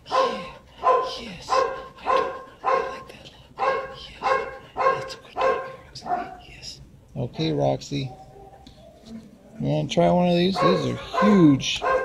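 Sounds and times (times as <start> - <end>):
dog whining: 8.0 - 9.4, 10.6 - 12.0
dog panting: 10.6 - 12.0.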